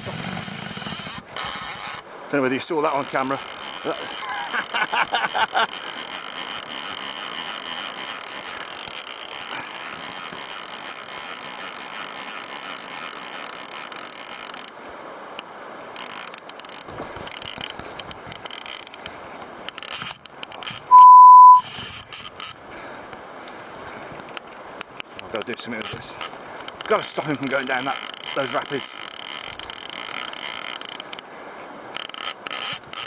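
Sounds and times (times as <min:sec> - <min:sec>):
fly reel drag buzzing: 0:00.0 - 0:14.8, 0:15.4 - 0:21.0, 0:21.6 - 0:22.6, 0:24.2 - 0:31.3, 0:31.9 - 0:33.0
short electronic beep: 0:20.9 - 0:21.6.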